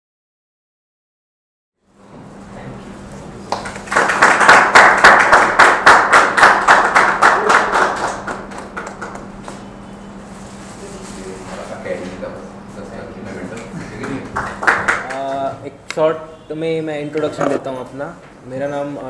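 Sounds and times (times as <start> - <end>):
people clapping: 3.4 - 9.7, 13.5 - 15.6.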